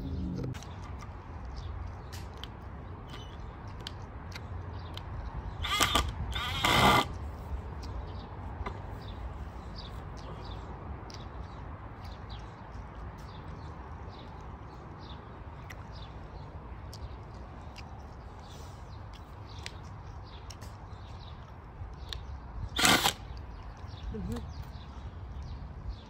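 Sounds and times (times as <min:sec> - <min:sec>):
faint birds chirping: 0:00.0 - 0:26.0
cordless drill driving screws: 0:05.6 - 0:07.2, 0:22.8 - 0:23.2.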